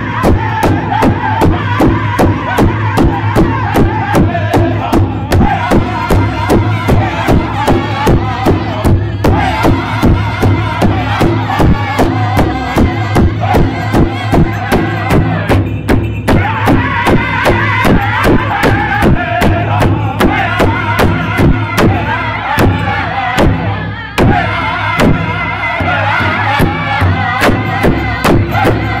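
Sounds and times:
group singing high-pitched: 0.0 - 29.0
large hide drum beating: 0.0 - 29.0.

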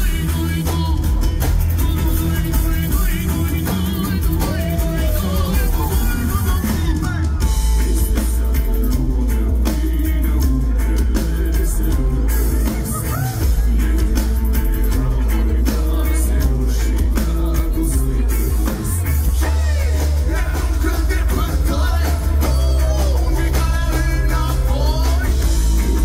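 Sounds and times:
bass guitar: 0.0 - 26.0
drum kit: 0.0 - 26.0
electric guitar: 0.0 - 26.0
person singing: 0.0 - 26.0.

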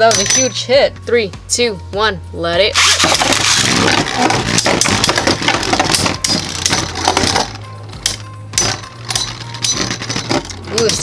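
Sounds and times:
tops clacking and rattling: 2.8 - 11.0.

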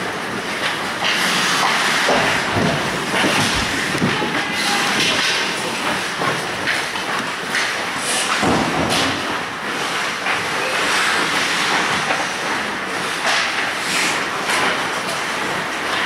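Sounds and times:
hockey sticks and puck clacking: 0.6 - 12.4.

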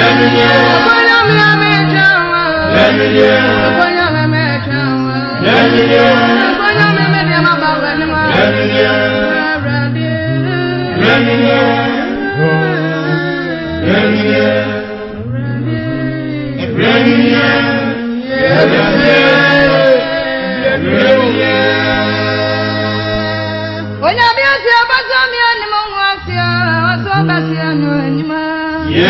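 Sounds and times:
man singing: 0.0 - 5.9
woman singing: 0.0 - 11.3, 12.0 - 13.9, 15.0 - 17.1, 24.0 - 29.0
steady bass line: 0.0 - 24.1.

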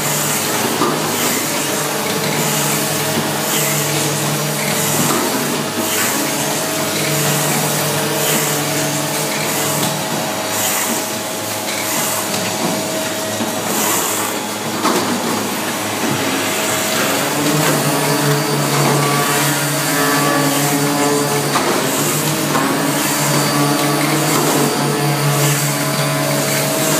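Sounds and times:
machine motor drone: 0.0 - 26.9
deeper hum: 14.3 - 21.6.

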